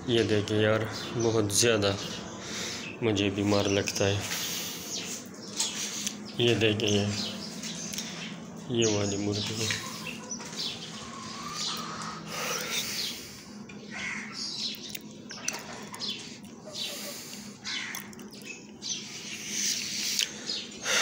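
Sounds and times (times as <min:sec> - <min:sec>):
hens clucking: 0:09.4 - 0:14.2, 0:15.4 - 0:18.3.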